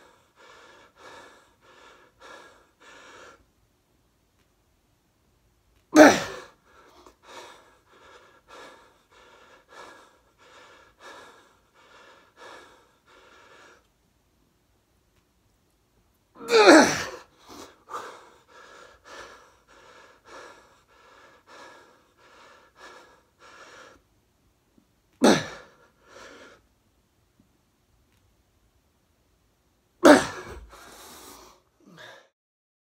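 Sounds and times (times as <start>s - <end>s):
man breathing hard: 0.0s - 3.5s, 6.2s - 13.9s, 17.0s - 24.1s, 25.2s - 26.6s, 30.2s - 32.3s
loud gasping breaths: 6.0s - 13.9s, 16.5s - 24.0s, 30.0s - 32.3s.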